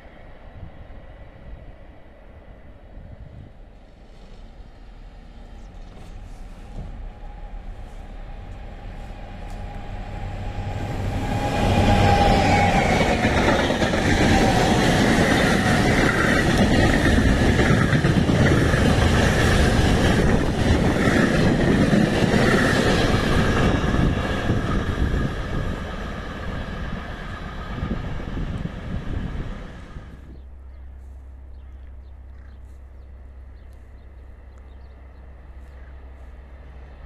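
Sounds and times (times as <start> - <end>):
freight train wheels rattling on rails: 5.4 - 30.2.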